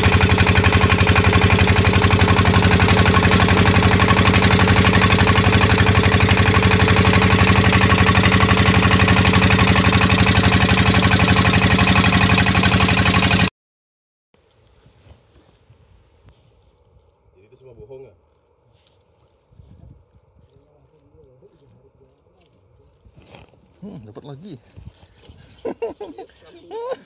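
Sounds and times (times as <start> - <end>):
boat engine running: 0.0 - 13.5.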